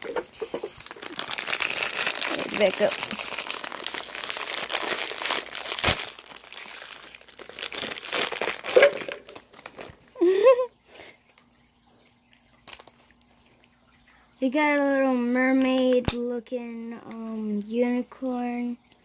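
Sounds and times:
plastic wrappers crinkling: 0.0s - 11.4s, 12.2s - 13.8s
sharp crack: 4.7s - 6.3s.

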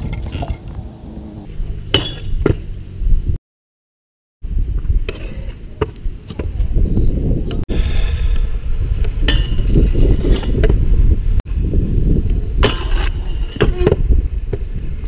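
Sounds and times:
scooter wheels rolling and clattering: 0.0s - 1.4s
scooter scraping: 0.0s - 1.5s, 12.7s - 14.0s.

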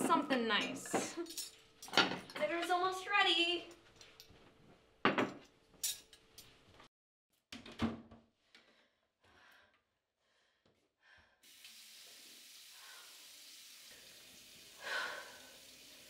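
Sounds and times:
sink tap running: 11.5s - 16.0s.

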